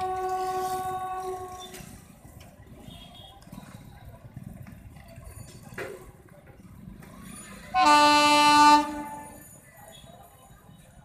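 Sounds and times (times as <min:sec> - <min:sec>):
loud horn blaring: 0:00.0 - 0:01.8, 0:07.8 - 0:09.4
low traffic rumble: 0:00.0 - 0:11.0.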